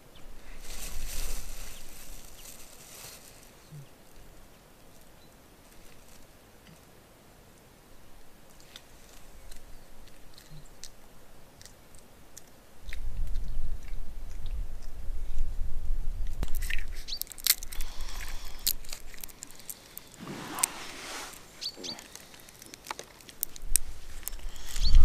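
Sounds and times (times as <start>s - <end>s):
plastic bag crinkling: 0.4s - 4.3s, 5.6s - 6.3s, 16.4s - 25.0s
low microphone rumble: 12.9s - 17.0s
person eating crunchily: 16.4s - 25.0s.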